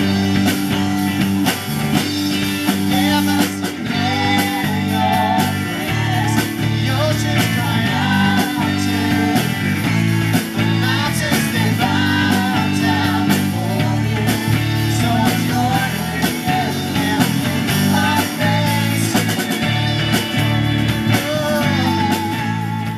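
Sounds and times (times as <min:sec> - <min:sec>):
rock band playing: 0:00.0 - 0:22.9
women singing: 0:03.9 - 0:09.7, 0:10.8 - 0:18.9.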